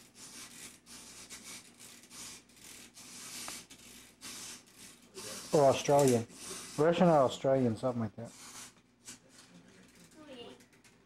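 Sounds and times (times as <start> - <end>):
rhythmic rubbing or scraping: 0.0 - 10.6.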